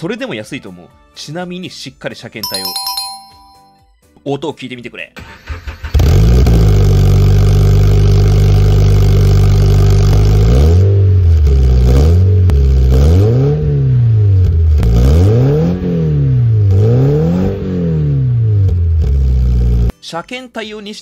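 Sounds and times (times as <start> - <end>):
car exhaust idling and revving: 6.0 - 19.9.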